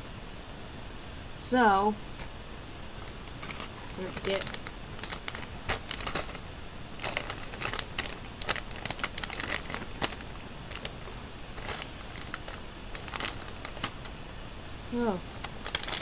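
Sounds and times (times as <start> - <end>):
plastic chip bag crinkling: 3.0 - 14.2, 15.0 - 16.0.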